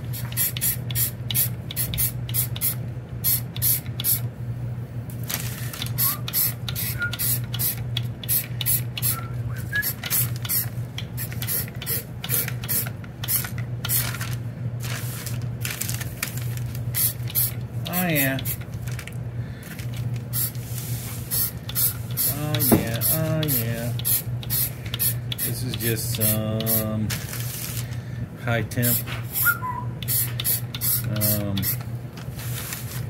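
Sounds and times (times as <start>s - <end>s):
steady low hum: 0.0s - 33.0s
aerosol can spraying bursts: 30.0s - 31.8s.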